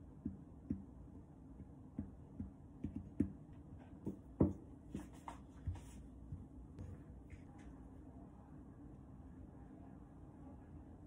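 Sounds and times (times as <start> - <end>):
knife tapping and scraping dough: 0.2 - 6.5.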